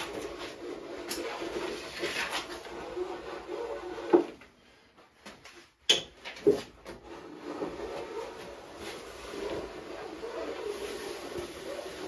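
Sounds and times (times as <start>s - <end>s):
gloved hand rubbing wooden beam: 0.0s - 4.3s, 7.0s - 12.0s.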